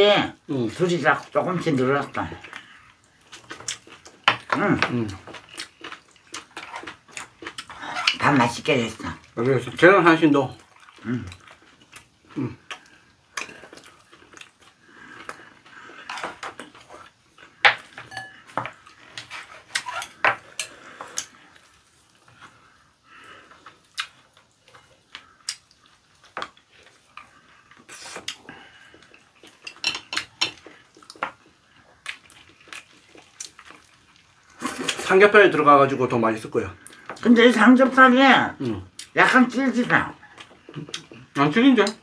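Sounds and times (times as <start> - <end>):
chewing and mouth sounds: 1.2 - 8.2, 10.5 - 22.8, 23.4 - 35.1, 39.8 - 42.0
chopsticks clinking on ceramic bowls: 18.0 - 18.6, 29.6 - 30.6.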